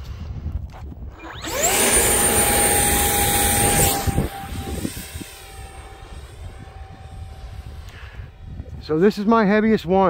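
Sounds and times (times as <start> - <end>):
electric ducted fan whine: 1.1 - 10.0.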